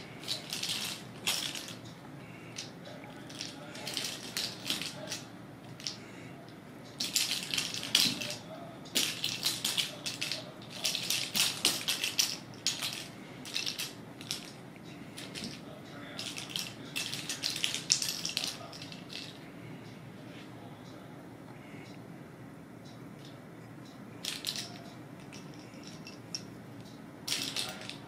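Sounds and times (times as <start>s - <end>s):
toy ball rattling: 0.0s - 6.0s, 6.9s - 14.6s, 15.2s - 19.4s, 24.2s - 26.5s, 27.3s - 28.0s.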